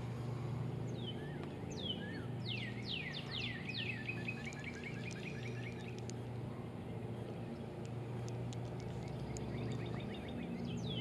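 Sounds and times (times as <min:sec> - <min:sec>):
steady low hum: 0:00.0 - 0:11.0
songbird whistling and trilling: 0:00.9 - 0:06.0, 0:09.0 - 0:11.0.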